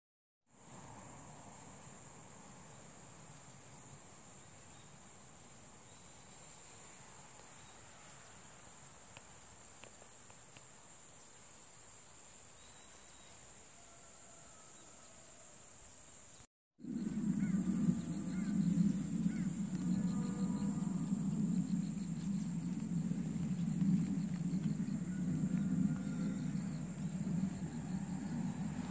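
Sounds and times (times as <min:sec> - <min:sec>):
insects chirping: 0:00.6 - 0:28.9
low rumble: 0:16.8 - 0:28.9.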